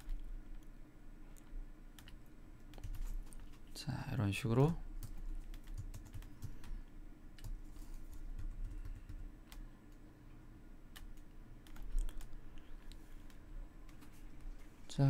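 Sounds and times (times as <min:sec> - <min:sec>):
low steady hum: 0:00.0 - 0:15.0
computer keyboard clicks: 0:02.0 - 0:03.6, 0:05.0 - 0:06.8, 0:07.4 - 0:10.0, 0:11.0 - 0:12.4.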